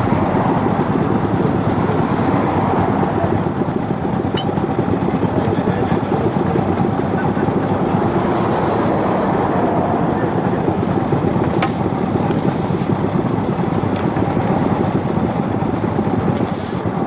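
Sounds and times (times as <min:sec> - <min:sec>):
stationary engine running: 0:00.0 - 0:17.0
short high hisses: 0:12.4 - 0:14.0, 0:16.4 - 0:16.8.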